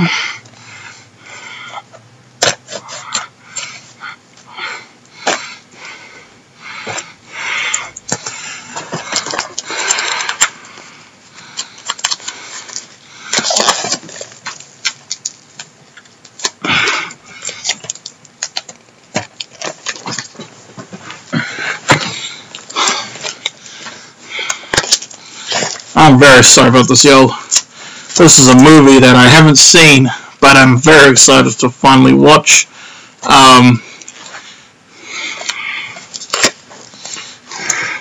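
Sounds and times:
packaging rustling and crinkling: 11.6s - 16.6s, 17.4s - 24.0s.

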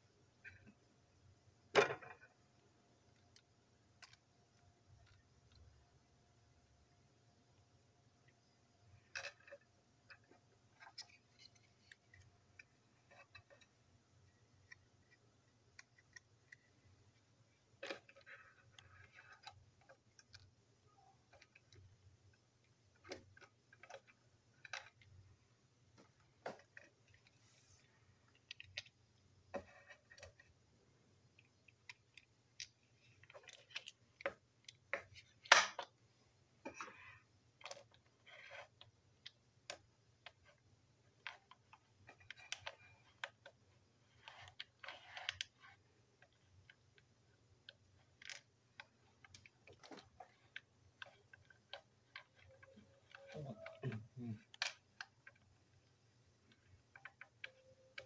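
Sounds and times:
small plastic clicks and knocks: 8.2s - 25.3s, 31.3s - 36.0s, 36.6s - 58.0s.

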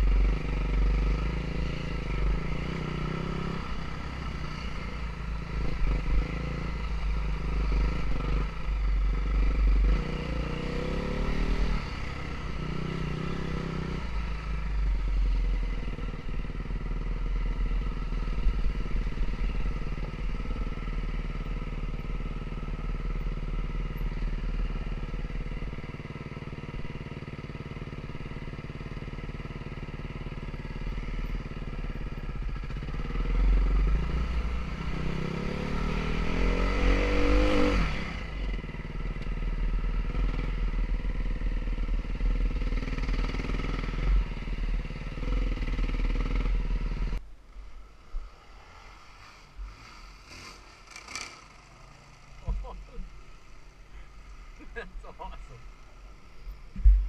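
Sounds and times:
atv engine revving: 0.0s - 47.2s, 48.5s - 57.0s.

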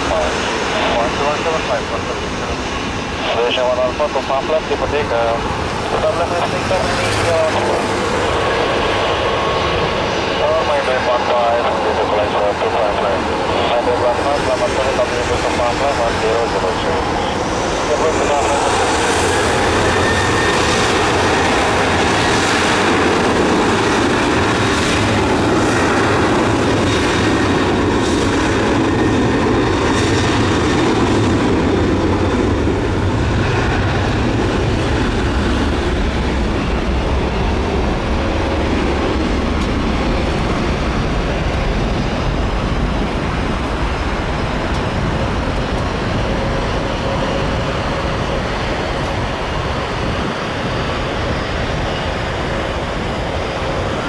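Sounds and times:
faint jet whine: 0.0s - 54.0s
jet engines rumbling: 0.0s - 54.0s.

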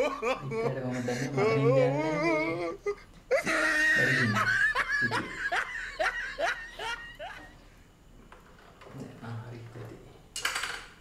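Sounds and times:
man laughing: 0.0s - 7.6s.

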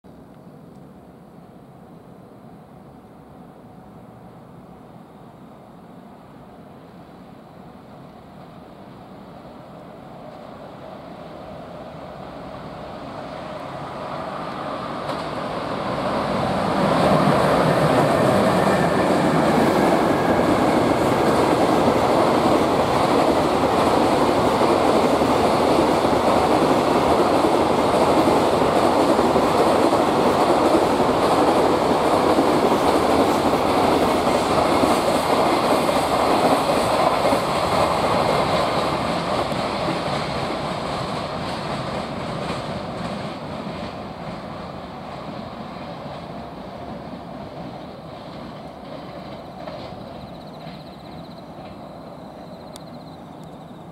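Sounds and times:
freight train passing: 0.2s - 53.9s.

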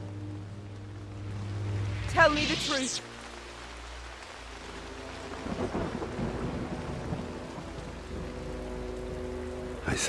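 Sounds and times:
steady rain: 0.0s - 10.0s
low rolling thunder: 5.4s - 8.4s.

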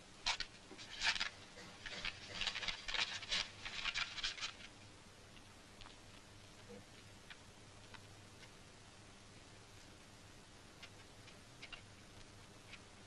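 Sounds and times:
paper rustling and crackling: 0.2s - 4.7s.

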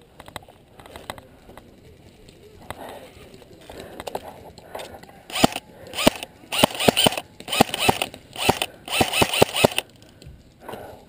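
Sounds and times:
airsoft rifle shots: 5.3s - 9.8s.

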